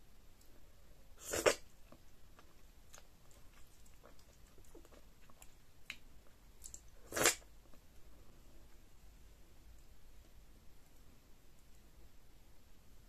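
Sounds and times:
loud slurp: 0:01.2 - 0:01.6, 0:07.1 - 0:07.4
soft wet chewing: 0:01.2 - 0:08.8.

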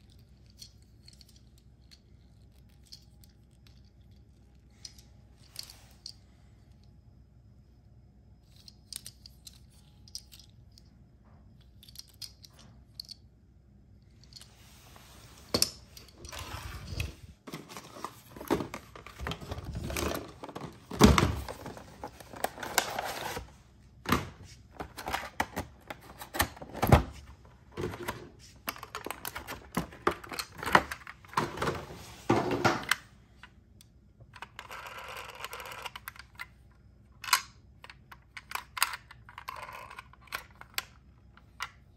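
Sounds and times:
plastic toy parts clicking: 0:08.4 - 0:10.9, 0:11.6 - 0:13.2, 0:34.3 - 0:41.8
cardboard and plastic rustling: 0:16.1 - 0:32.9.

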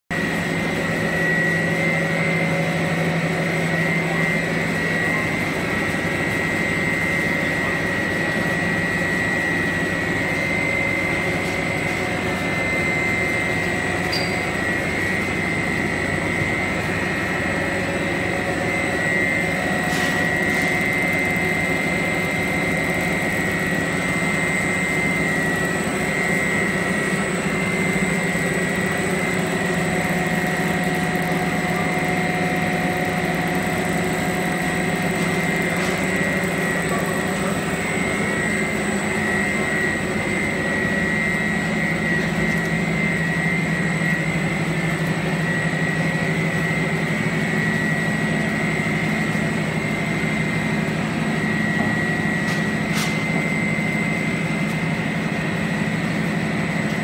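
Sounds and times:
high-pitched machine whine: 0:00.1 - 0:57.0
drone of motors and drives: 0:00.2 - 0:57.0.

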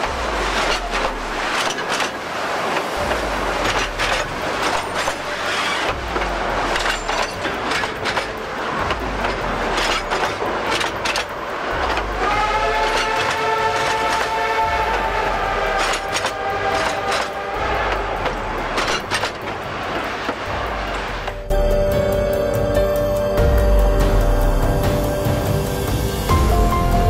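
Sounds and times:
train wheels clattering over rails: 0:00.0 - 0:21.5
train horn: 0:11.9 - 0:19.4.

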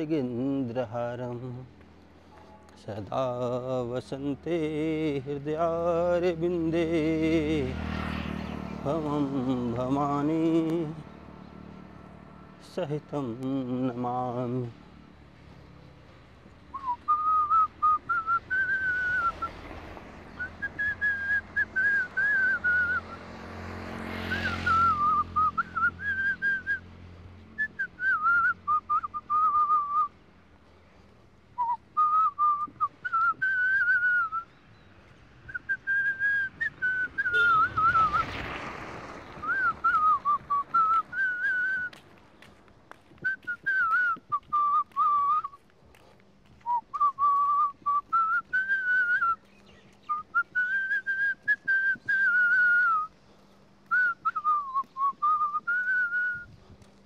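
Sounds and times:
person whistling a melody: 0:16.7 - 0:19.6, 0:20.3 - 0:23.2, 0:24.3 - 0:26.9, 0:27.6 - 0:30.2, 0:31.6 - 0:38.3, 0:39.4 - 0:42.0, 0:43.0 - 0:53.2, 0:53.8 - 0:56.6.

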